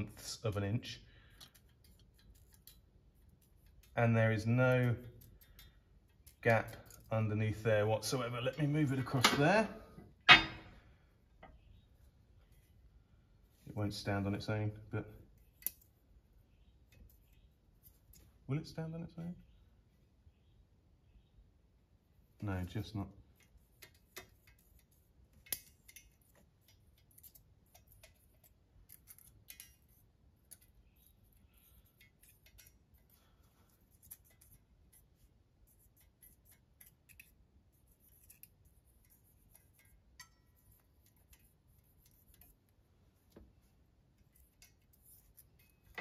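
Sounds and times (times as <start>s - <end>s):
small metallic clicks: 1.2s - 4.0s, 4.8s - 7.2s, 15.4s - 16.0s, 23.4s - 35.1s.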